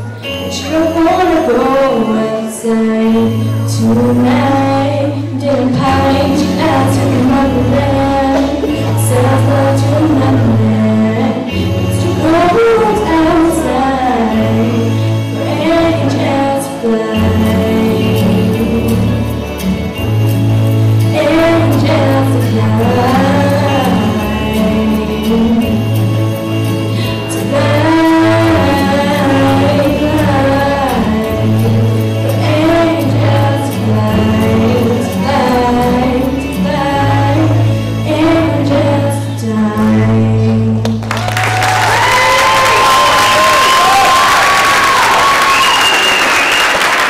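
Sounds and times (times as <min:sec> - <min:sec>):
woman singing into microphone: 0:00.0 - 0:19.5, 0:21.0 - 0:26.0, 0:26.9 - 0:41.1
backing track with bass notes: 0:00.0 - 0:45.4
audience applause: 0:41.0 - 0:47.0.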